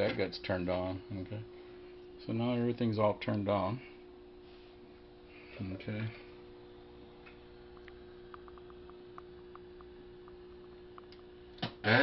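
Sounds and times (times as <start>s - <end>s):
faint mains hum: 0.0s - 12.0s.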